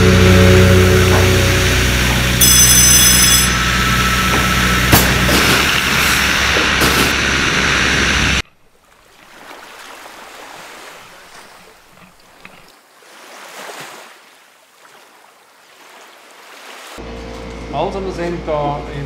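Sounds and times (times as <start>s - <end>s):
loud engine noise: 0.0s - 8.4s, 17.0s - 19.0s
small waves rushing: 3.6s - 17.0s.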